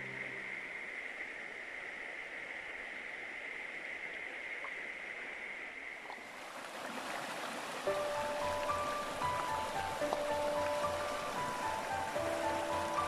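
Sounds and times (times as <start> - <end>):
river rushing over stones: 0.0 - 13.0.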